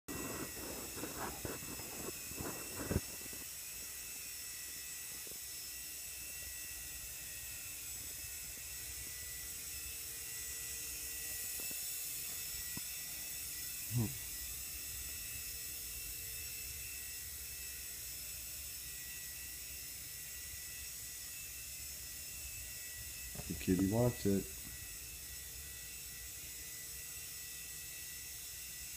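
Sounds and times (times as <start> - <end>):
rc helicopter hovering whine: 0.1 - 28.9.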